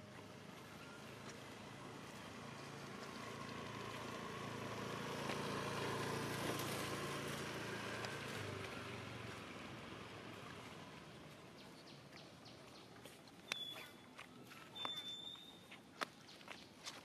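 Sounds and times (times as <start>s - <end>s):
motorbike engine passing: 0.3s - 11.3s.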